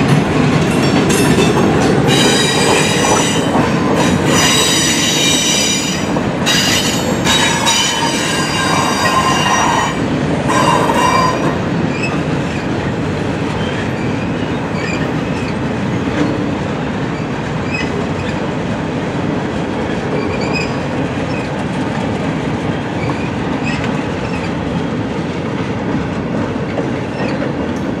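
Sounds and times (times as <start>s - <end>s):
freight cars rolling over rails: 0.0s - 25.2s
train wheel squeal: 2.1s - 12.3s, 13.6s - 15.6s, 17.2s - 18.4s, 19.9s - 21.6s, 22.9s - 24.6s, 26.7s - 27.5s.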